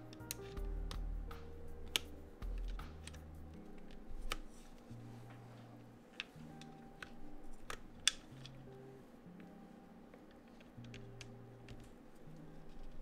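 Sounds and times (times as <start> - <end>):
low background music: 0.0 - 13.0
plastic keycap clicks: 1.8 - 3.2, 6.2 - 8.6.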